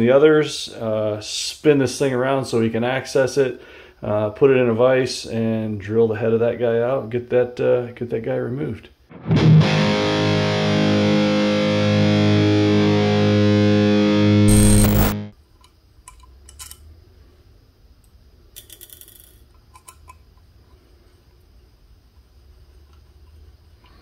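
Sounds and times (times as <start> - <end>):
distorted electric guitar chord: 9.1 - 15.3.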